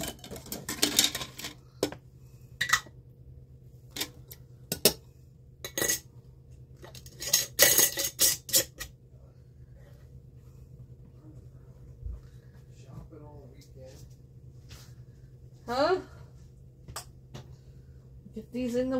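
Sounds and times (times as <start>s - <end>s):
faint steady hum: 0.0s - 18.9s
glass jars clinking: 5.6s - 6.1s, 6.8s - 8.9s.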